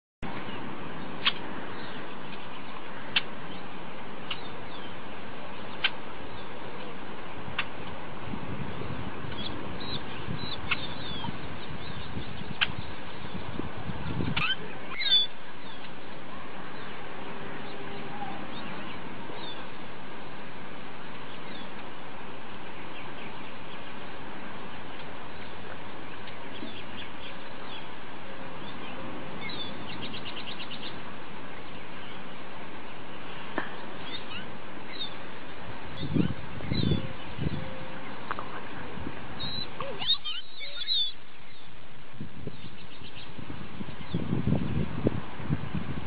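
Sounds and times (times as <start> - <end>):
steady background hiss: 0.2 - 46.0
high bird chirps: 14.1 - 15.9, 39.4 - 41.7.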